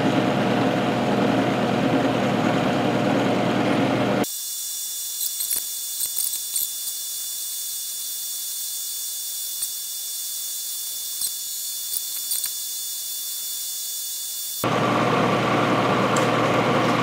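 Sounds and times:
milling machine cutting metal: 0:04.2 - 0:15.0.

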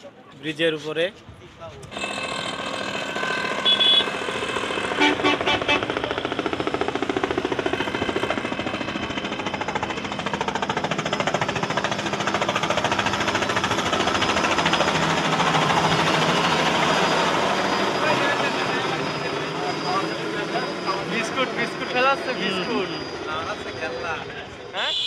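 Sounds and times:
helicopter rotor chopping: 0:01.2 - 0:25.0
traffic horn toots: 0:03.6 - 0:04.2, 0:05.0 - 0:06.0, 0:24.8 - 0:25.0.

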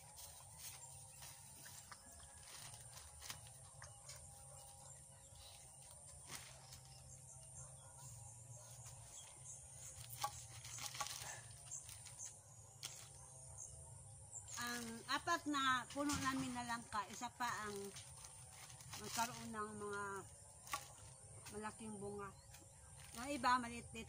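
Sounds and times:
plastic crinkling: 0:09.8 - 0:13.2, 0:14.5 - 0:21.1.

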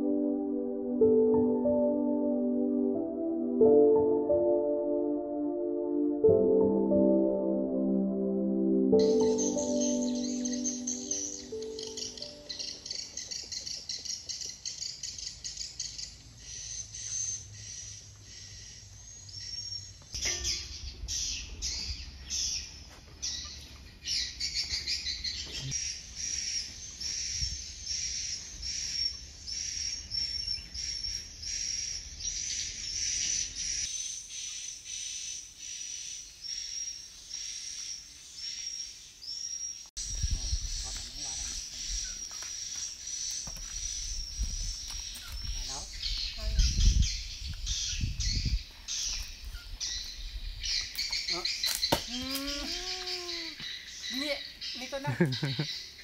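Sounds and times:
birds chirping: 0:08.9 - 0:56.0
repeating high chirp: 0:09.0 - 0:13.2
faint insects: 0:25.3 - 0:47.4, 0:48.6 - 0:56.0.

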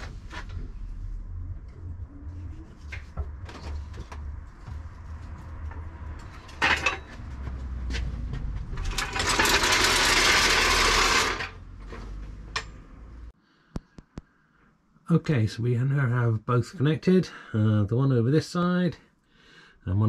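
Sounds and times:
low steady rumble: 0:00.0 - 0:10.8.

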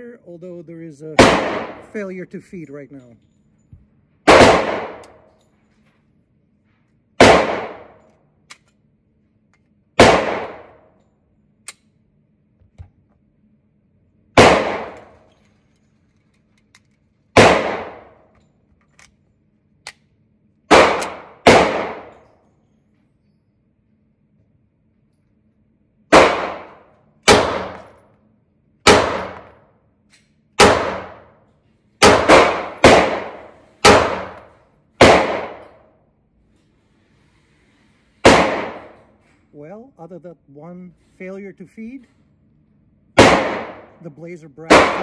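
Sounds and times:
gunshots echoing indoors: 0:01.0 - 0:02.4, 0:04.2 - 0:05.4, 0:07.1 - 0:08.4, 0:09.9 - 0:11.9, 0:14.2 - 0:15.5, 0:17.2 - 0:18.4, 0:20.7 - 0:22.5, 0:25.9 - 0:36.1, 0:38.2 - 0:39.2, 0:43.0 - 0:45.0
small metallic clicks and clinks: 0:02.6 - 0:03.9, 0:05.0 - 0:06.1, 0:08.0 - 0:08.9, 0:15.2 - 0:17.2, 0:18.3 - 0:20.1.

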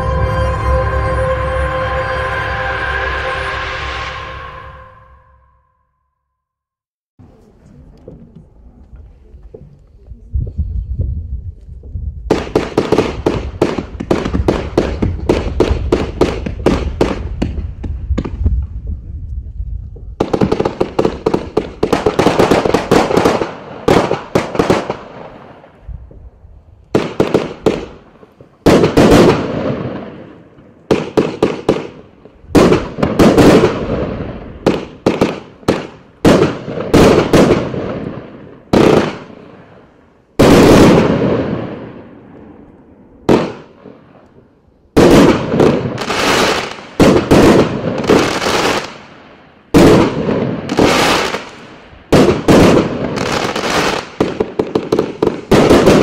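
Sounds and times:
firework bangs: 0:12.3 - 0:18.8, 0:20.2 - 0:42.6, 0:43.2 - 0:44.2, 0:45.0 - 0:49.1, 0:49.7 - 0:56.0
fireworks firing: 0:20.2 - 0:25.9, 0:26.9 - 0:44.2, 0:45.0 - 0:56.0.

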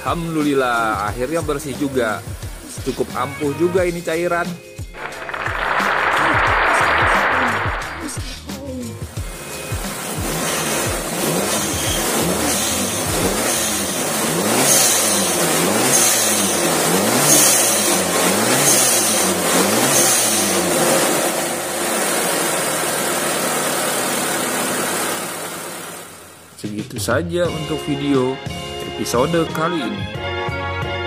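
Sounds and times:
engine revving in throttle blips: 0:09.9 - 0:26.2.

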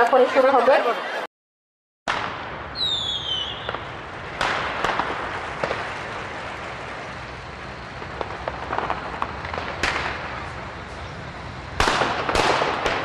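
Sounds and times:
firecrackers going off: 0:02.1 - 0:13.0
steady background noise: 0:02.1 - 0:13.0
falling whistle: 0:02.8 - 0:03.8.

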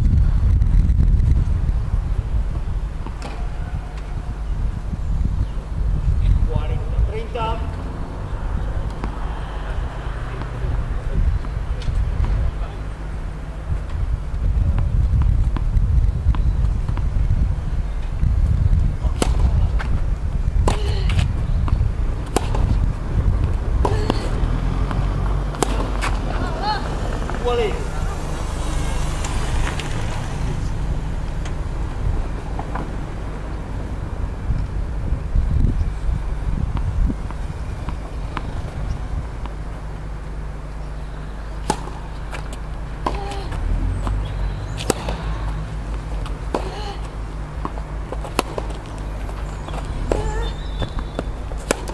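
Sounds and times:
low rumble: 0:00.0 - 0:51.9
racket hitting tennis ball: 0:03.0 - 0:04.4, 0:08.8 - 0:12.8, 0:19.0 - 0:28.4, 0:29.0 - 0:33.5, 0:36.7 - 0:39.8, 0:41.4 - 0:51.9
tennis ball bouncing on court: 0:08.8 - 0:10.6, 0:19.0 - 0:20.0, 0:20.6 - 0:27.8, 0:29.2 - 0:33.6, 0:36.7 - 0:39.8, 0:41.4 - 0:51.9
tennis ball pops: 0:20.6 - 0:22.8, 0:23.8 - 0:26.2, 0:41.6 - 0:43.7, 0:44.7 - 0:45.6, 0:47.6 - 0:48.9, 0:50.8 - 0:51.9.

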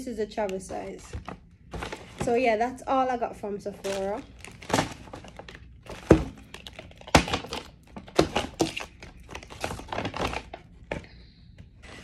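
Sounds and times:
bags rustling and crinkling: 0:00.7 - 0:02.6, 0:03.6 - 0:11.1
items thudding down: 0:00.7 - 0:02.6, 0:03.7 - 0:11.1.

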